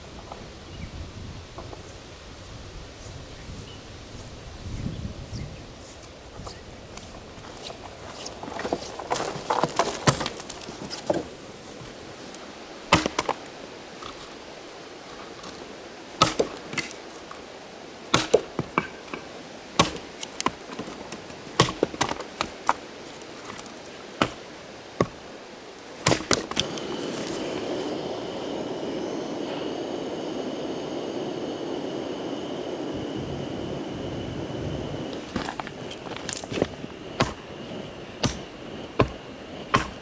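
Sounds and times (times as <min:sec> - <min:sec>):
rushing noise with high whine: 0:00.0 - 0:40.0
axe chopping firewood: 0:09.1 - 0:11.3, 0:12.9 - 0:13.4, 0:16.2 - 0:17.0, 0:18.1 - 0:20.9, 0:21.6 - 0:22.8, 0:24.2 - 0:25.2, 0:26.0 - 0:26.7, 0:36.2 - 0:37.4, 0:38.2 - 0:38.4, 0:39.0 - 0:40.0.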